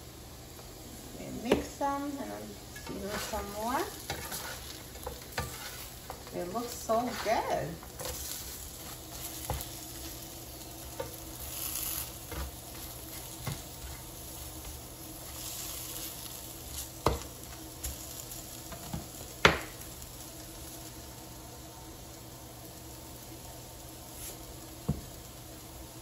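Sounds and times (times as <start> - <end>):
potatoes sizzling in hot oil: 0.0 - 26.0
tongs scraping and knocking pan: 2.7 - 10.2, 10.8 - 18.0.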